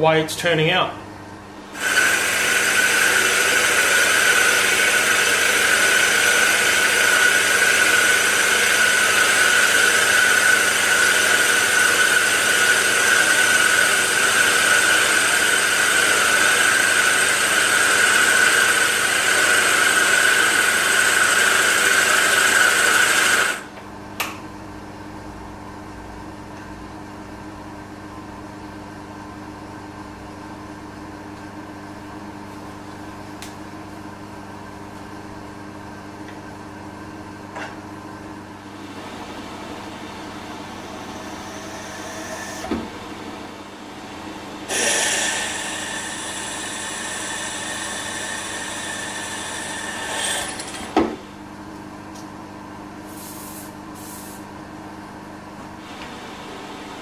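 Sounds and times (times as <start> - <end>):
milling machine whine with cutting hiss: 1.6 - 23.7, 38.6 - 51.4, 53.0 - 54.6, 55.8 - 57.0.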